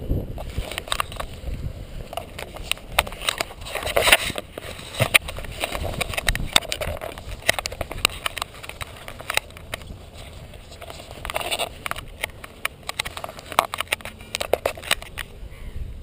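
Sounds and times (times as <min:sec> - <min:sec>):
wind rumbling on microphone: 0:00.0 - 0:16.0
camera handling clicks and knocks: 0:00.4 - 0:01.3, 0:02.1 - 0:15.4.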